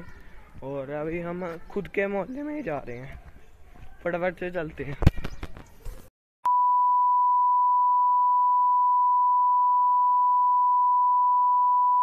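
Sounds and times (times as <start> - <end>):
steady electronic beep tone: 6.5 - 12.0.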